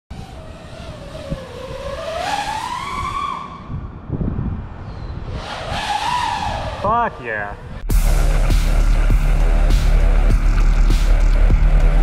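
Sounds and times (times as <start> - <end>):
drone motors whining: 0.1 - 4.0, 7.6 - 12.0
wind rushing over microphone: 0.1 - 7.9.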